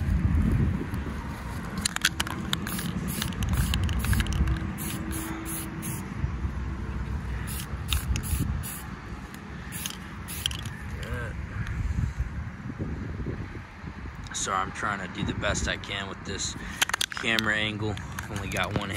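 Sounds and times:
spray paint can hissing: 2.2 - 6.0, 7.5 - 8.9, 9.7 - 10.7.

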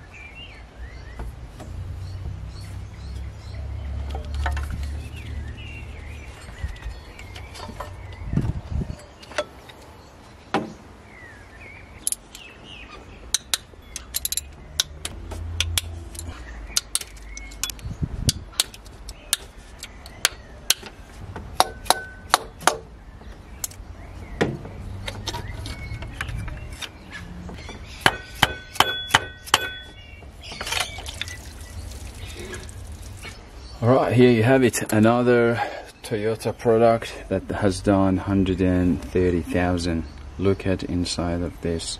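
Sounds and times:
metal hand tools clinking: 13.4 - 14.5.

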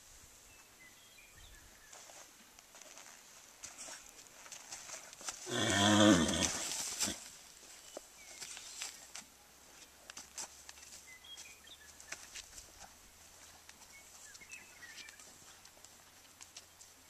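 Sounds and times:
small birds chirping: 0.4 - 2.3, 7.4 - 17.0
hoof and boot steps on dirt: 0.5 - 17.0.

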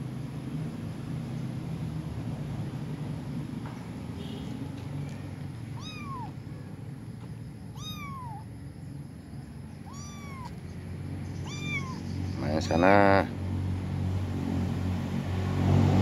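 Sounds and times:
kitten meowing: 5.7 - 6.4, 7.7 - 8.5, 9.8 - 10.7, 11.3 - 12.4.

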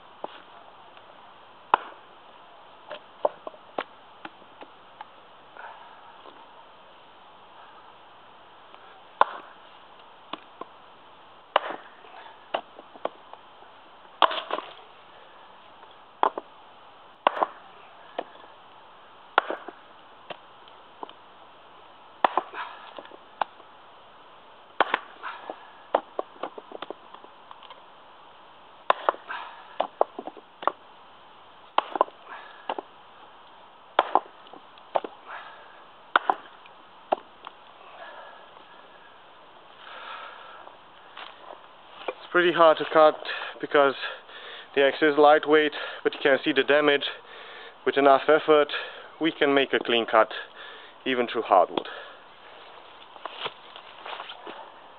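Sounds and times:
axe chopping wood: 1.7 - 2.0, 9.2 - 9.6, 11.5 - 13.2, 14.2 - 14.8, 16.2 - 16.5, 17.2 - 18.4, 19.3 - 20.4, 22.2 - 23.6, 24.8 - 27.7, 28.8 - 30.8, 31.7 - 32.9, 33.9 - 35.5, 36.1 - 37.6.

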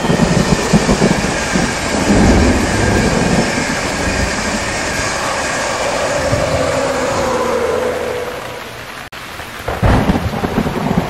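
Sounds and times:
train wheels knocking on rails: 0.0 - 6.5
train rushing noise: 0.0 - 9.1
falling tone: 0.4 - 9.1.

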